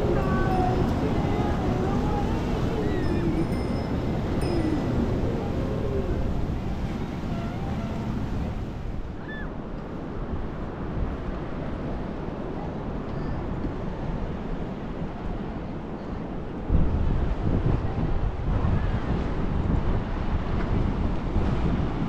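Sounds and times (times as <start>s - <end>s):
passing voices: 0.0s - 8.9s
ocean surf rushing: 0.0s - 9.4s
wind on microphone: 0.0s - 22.0s.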